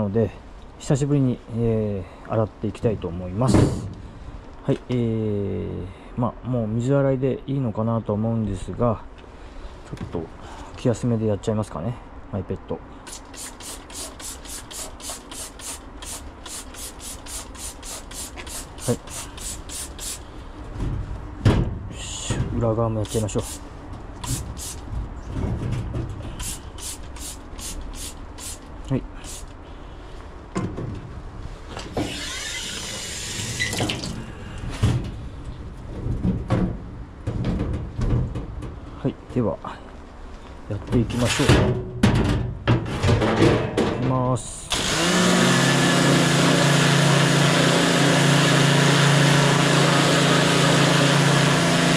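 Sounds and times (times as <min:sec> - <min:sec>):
spray bottle hissing: 0:13.1 - 0:20.2, 0:23.1 - 0:23.6, 0:24.2 - 0:24.8, 0:26.4 - 0:29.5.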